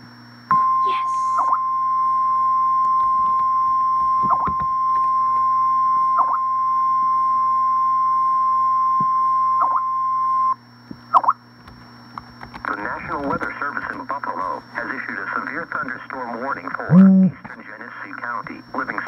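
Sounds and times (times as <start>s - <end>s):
steady high alarm tone: 0.5s - 10.6s.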